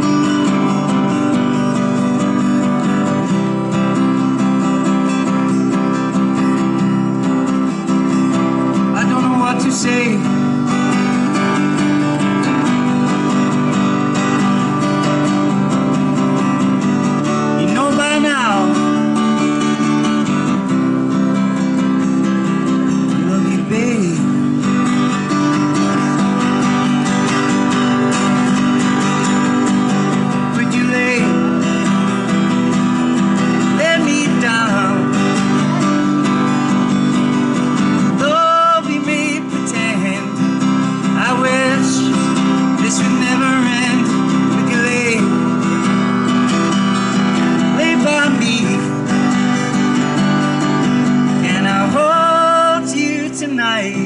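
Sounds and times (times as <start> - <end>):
acoustic guitar strumming: 0.0 - 54.0.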